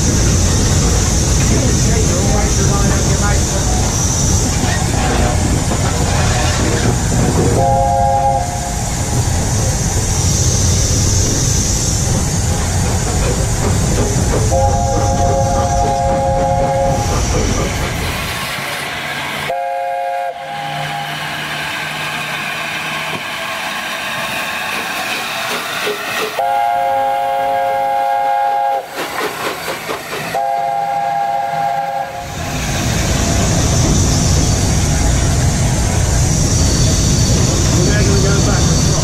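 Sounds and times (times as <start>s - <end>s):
locomotive rumble and wind: 0.0s - 19.4s, 29.1s - 39.0s
steam hiss: 0.0s - 19.7s, 20.4s - 39.0s
steam locomotive chime whistle: 7.6s - 8.8s, 14.5s - 17.0s, 19.5s - 21.1s, 26.4s - 28.9s, 30.3s - 32.3s.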